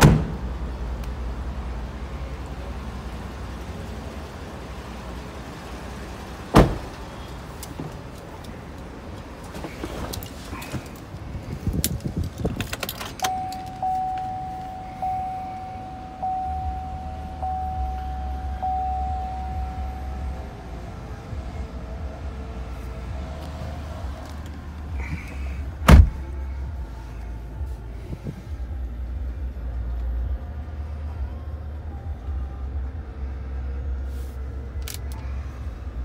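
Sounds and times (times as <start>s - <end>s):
car door shutting: 0.0s - 0.4s, 6.5s - 7.0s, 25.0s - 26.4s
keys jangling: 11.7s - 14.2s
dashboard warning chime: 13.0s - 20.6s.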